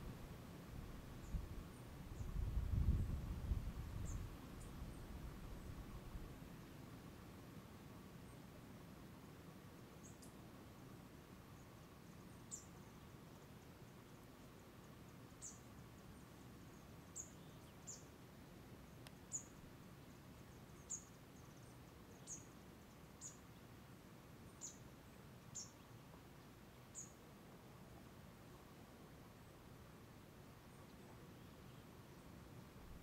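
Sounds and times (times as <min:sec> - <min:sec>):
faint steady hiss: 0:00.0 - 0:33.0
small bird high chirp: 0:15.4 - 0:15.7, 0:16.7 - 0:18.1, 0:19.1 - 0:19.6, 0:20.6 - 0:22.5, 0:23.2 - 0:23.4, 0:24.6 - 0:24.8, 0:25.5 - 0:25.9, 0:26.9 - 0:27.2.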